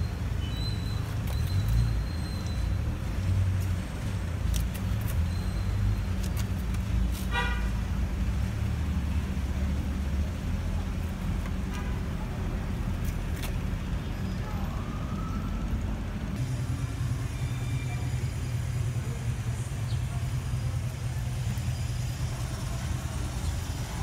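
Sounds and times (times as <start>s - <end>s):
road traffic rumble: 0.0s - 24.0s
car horn toot: 7.3s - 7.7s.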